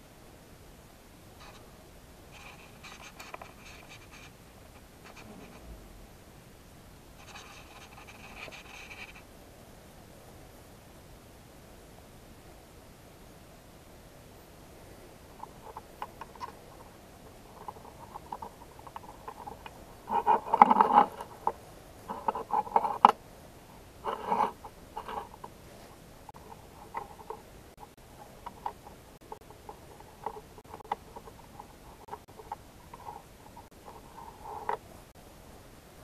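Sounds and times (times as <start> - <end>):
metal parts clicking and scraping: 17.5 - 21.5, 24.0 - 25.5.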